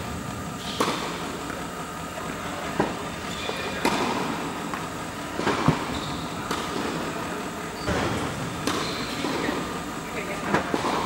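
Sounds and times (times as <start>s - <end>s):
indoor hall background noise: 0.0s - 11.0s
tennis balls struck by rackets: 0.6s - 1.6s, 3.6s - 7.1s, 7.9s - 9.8s.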